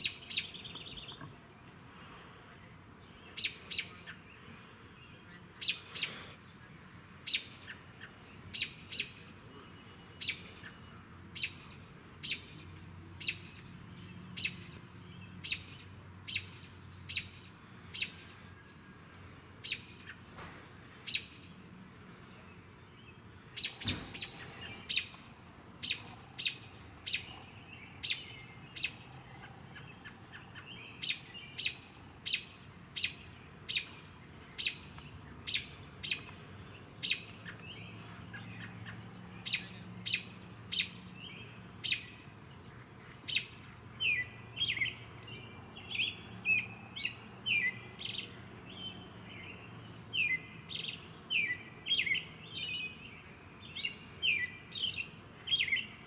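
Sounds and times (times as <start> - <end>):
robin calling: 0.0 - 2.2, 2.9 - 56.0.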